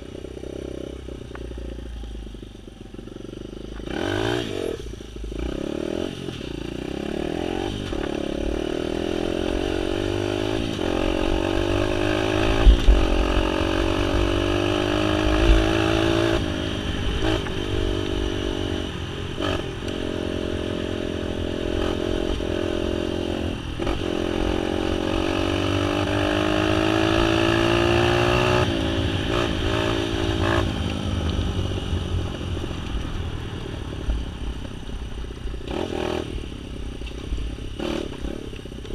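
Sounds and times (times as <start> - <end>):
off-road vehicle engine revving: 3.8 - 31.4, 37.6 - 38.9.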